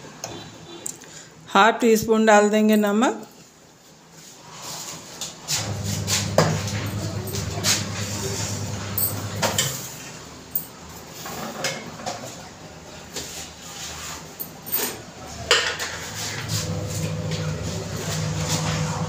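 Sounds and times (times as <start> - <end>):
low hum: 5.6 - 9.8
kitchen utensils clinking: 5.6 - 11.9.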